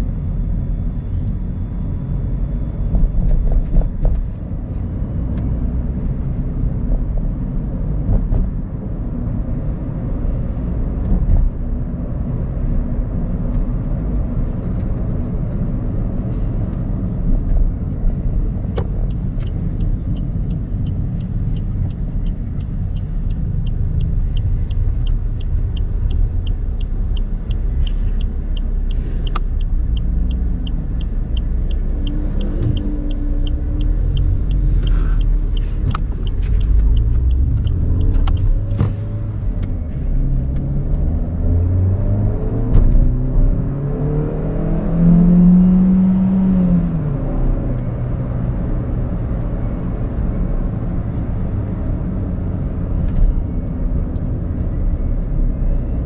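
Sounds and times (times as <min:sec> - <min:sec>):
car engine: 0:00.0 - 0:56.0
light ticking: 0:19.0 - 0:38.6.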